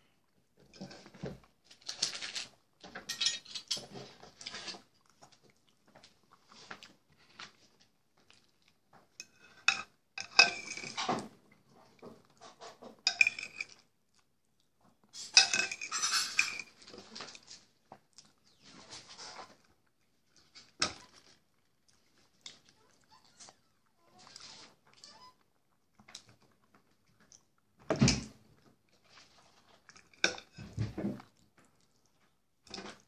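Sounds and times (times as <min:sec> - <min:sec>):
fork scraping a ceramic bowl: 0:15.3 - 0:16.7.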